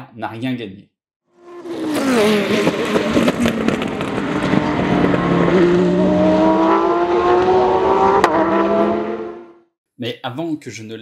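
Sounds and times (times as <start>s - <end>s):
racing car engine accelerating: 1.4s - 9.6s.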